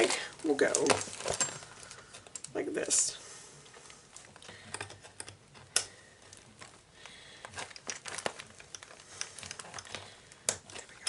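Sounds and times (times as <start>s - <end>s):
plastic bag crinkling: 0.0s - 3.1s, 6.2s - 11.0s.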